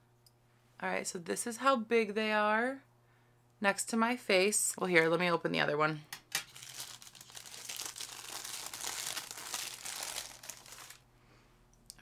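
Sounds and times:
wrapper crinkling: 6.4 - 11.0.

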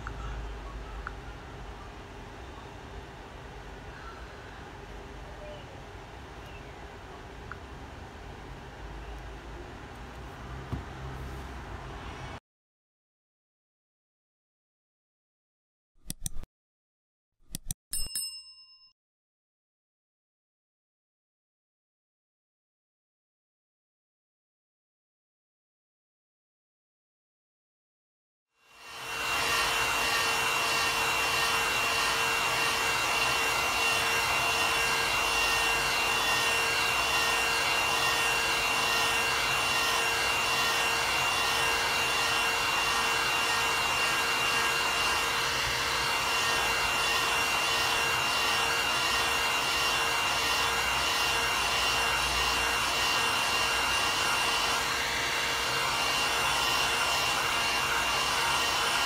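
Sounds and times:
heat gun blowing hot air: 28.7 - 59.0.

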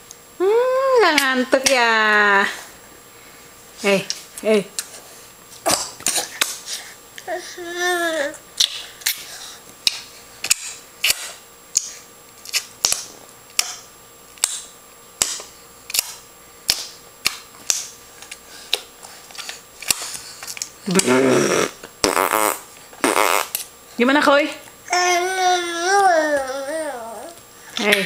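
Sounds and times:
baby babbling: 7.3 - 8.4, 24.9 - 27.4.

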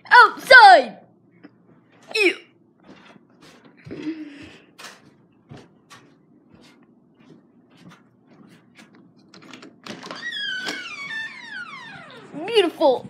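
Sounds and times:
door hinges squeaking: 9.5 - 12.6.

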